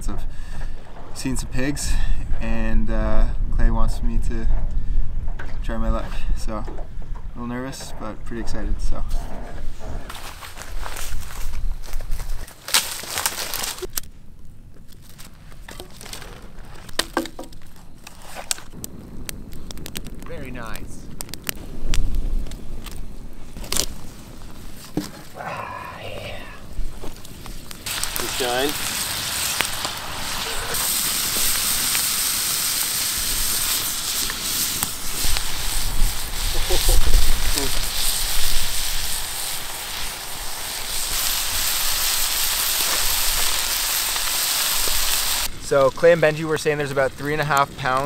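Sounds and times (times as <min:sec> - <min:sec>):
campfire crackling and popping: 0:00.0 - 0:48.0
dry brush crunching: 0:10.1 - 0:14.2, 0:14.8 - 0:18.8, 0:26.8 - 0:32.4
meat sizzling in a skillet: 0:27.1 - 0:48.0.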